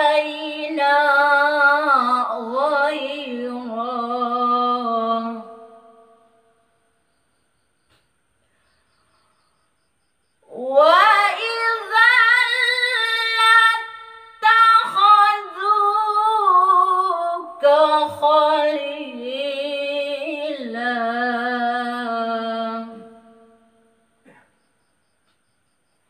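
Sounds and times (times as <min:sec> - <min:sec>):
woman reciting melodically: 0:00.0 - 0:06.3, 0:10.4 - 0:23.8.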